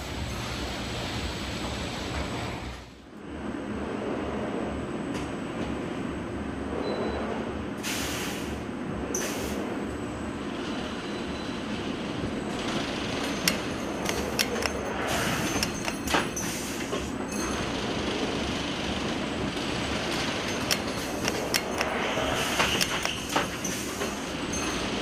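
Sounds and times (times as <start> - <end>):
clicks and clacks of moving parts: 12.5 - 25.0.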